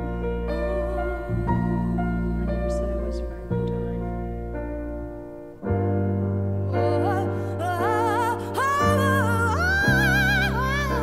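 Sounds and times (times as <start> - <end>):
sustained keyboard chords: 0.0 - 11.0
person singing with vibrato: 6.7 - 11.0.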